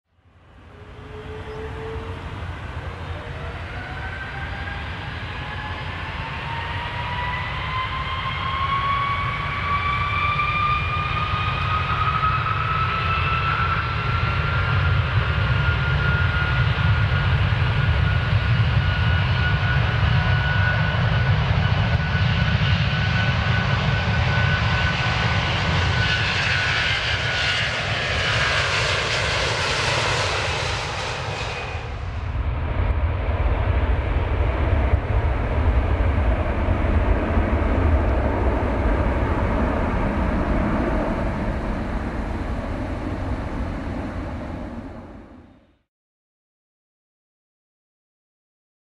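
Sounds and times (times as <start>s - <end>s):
jet engines whining: 0.4s - 45.7s
deep rumble: 27.7s - 45.5s.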